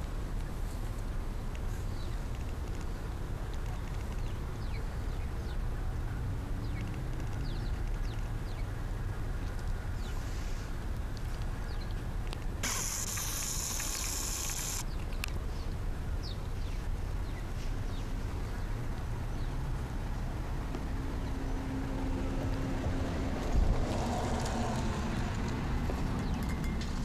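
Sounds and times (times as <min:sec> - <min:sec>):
small birds chirping: 0:01.4 - 0:06.0, 0:06.6 - 0:08.8, 0:11.6 - 0:19.6
loud hiss: 0:12.6 - 0:14.8.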